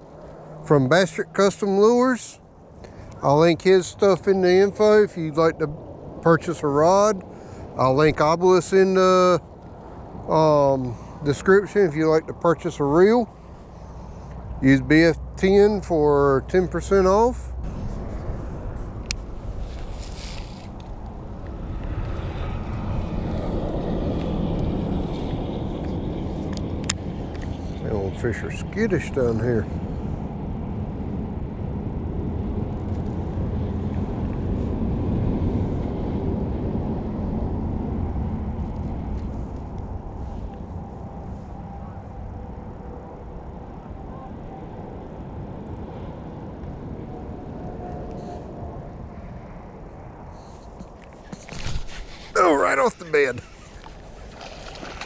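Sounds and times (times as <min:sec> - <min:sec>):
low outdoor rumble: 0:00.0 - 0:55.0
wind buffeting microphone: 0:03.7 - 0:43.8
fishing line hissing out: 0:19.6 - 0:20.8
fishing reel click: 0:20.0 - 0:20.9.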